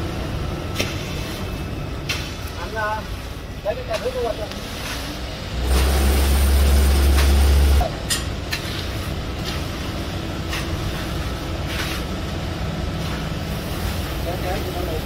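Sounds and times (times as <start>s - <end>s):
heavy engine rumbling: 0.0s - 15.0s
tool scraping wet concrete: 10.5s - 12.2s.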